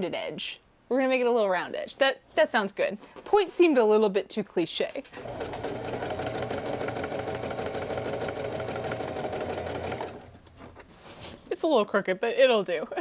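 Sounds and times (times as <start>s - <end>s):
sewing machine stitching: 5.2s - 10.4s.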